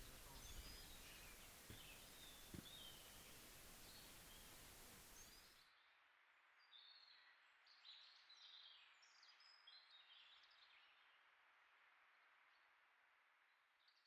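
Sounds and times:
birds chirping: 0.0s - 5.5s
outdoor background hiss: 0.0s - 6.6s.

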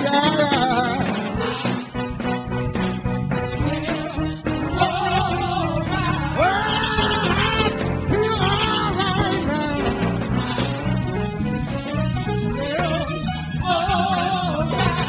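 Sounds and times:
instrumental accompaniment: 0.0s - 15.0s
choir singing: 0.1s - 2.2s, 3.5s - 11.2s, 12.5s - 15.0s
lead singer holding long notes: 3.6s - 11.2s, 12.4s - 15.0s.

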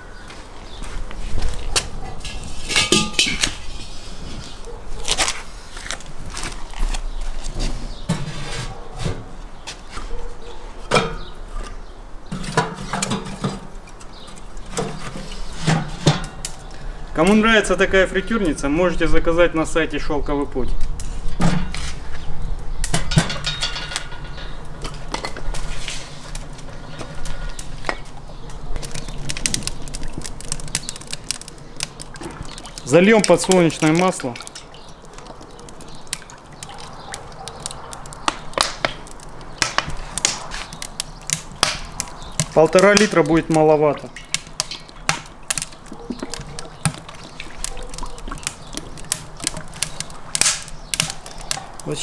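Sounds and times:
wood fire crackling: 0.0s - 8.6s, 9.4s - 52.0s
oil pouring and glugging: 26.2s - 37.5s, 43.8s - 50.4s.

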